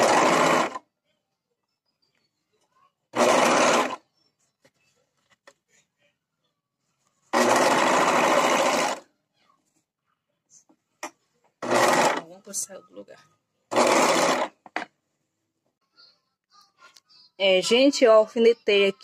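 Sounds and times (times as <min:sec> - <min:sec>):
overlock machine stitching: 0:00.0 - 0:00.8, 0:03.1 - 0:04.0, 0:07.3 - 0:09.0, 0:11.6 - 0:12.3, 0:13.7 - 0:14.6.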